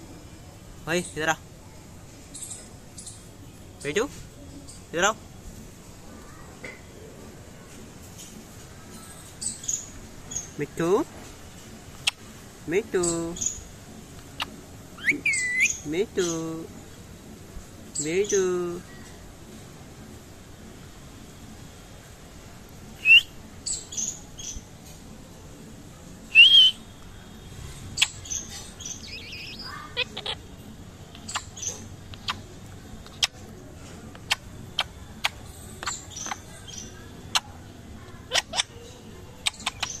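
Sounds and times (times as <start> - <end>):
parakeet chirps and chatter: 8.8 - 17.2, 23.0 - 24.7, 26.3 - 40.0
parakeet calling: 13.0 - 16.5, 26.3 - 26.9, 27.9 - 33.4, 34.1 - 40.0.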